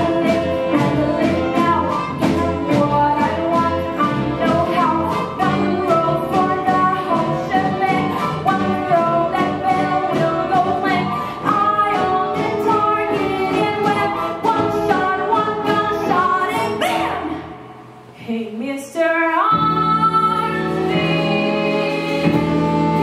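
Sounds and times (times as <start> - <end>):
live band playing show tune: 0.0 - 17.2, 20.2 - 23.0
woman singing: 0.0 - 17.6, 18.2 - 23.0.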